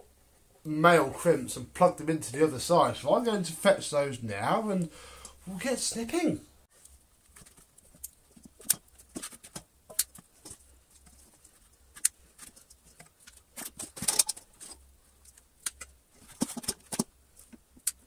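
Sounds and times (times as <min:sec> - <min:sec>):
hand tools clicking and tapping: 0:07.4 - 0:18.0.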